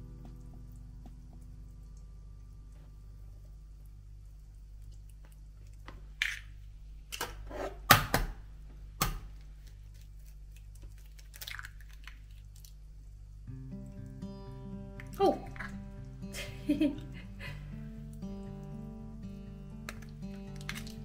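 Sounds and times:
eggshells cracking: 0:09.0 - 0:12.9, 0:19.8 - 0:21.0.

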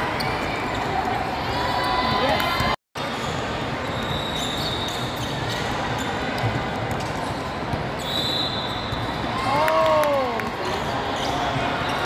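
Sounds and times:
background noise of hall: 0:00.0 - 0:12.0.

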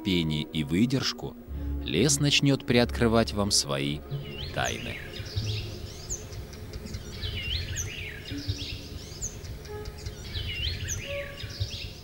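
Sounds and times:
songbird singing: 0:00.0 - 0:12.0.

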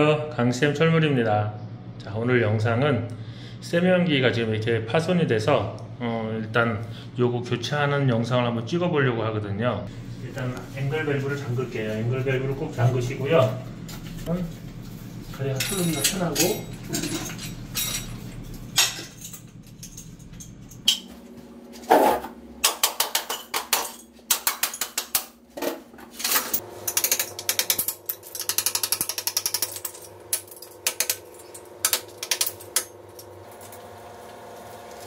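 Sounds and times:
ceramic shards clinking: 0:15.6 - 0:21.1
wrench ratcheting clicks: 0:26.9 - 0:29.8.

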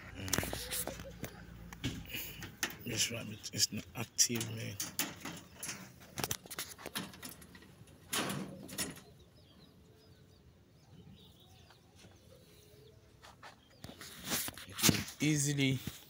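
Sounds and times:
knocks and rustles of handling: 0:04.3 - 0:09.1
faint high bird chirps: 0:08.6 - 0:14.8.

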